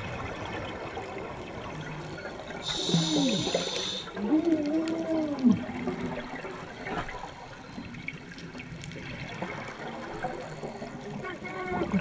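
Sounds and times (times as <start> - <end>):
regulator bubbles gurgling underwater: 0.0 - 12.0
small crackling clicks: 2.0 - 12.0
steady hiss: 2.6 - 4.2.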